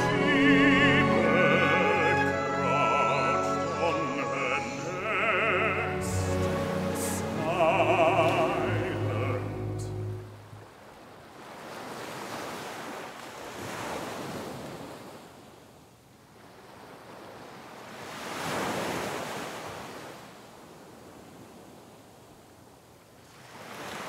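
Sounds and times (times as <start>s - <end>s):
ocean surf breaking on rocks: 17.9s - 20.3s.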